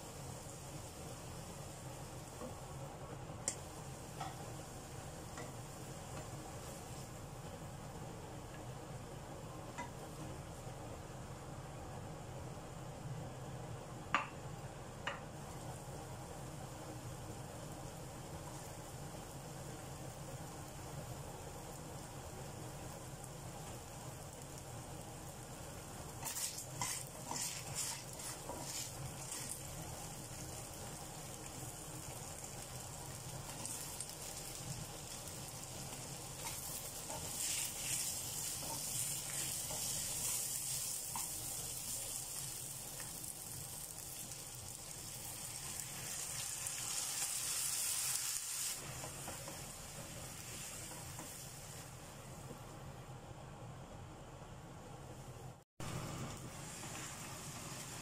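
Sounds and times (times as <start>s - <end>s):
vegetables sizzling in a pan: 0.0s - 52.9s, 55.8s - 58.0s
wooden spatula scraping pan: 26.2s - 29.6s.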